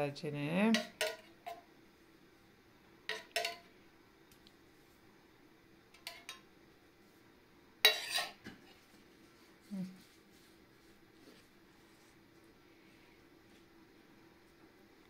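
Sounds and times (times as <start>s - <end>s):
utensil clinking against dish: 3.1s - 3.6s.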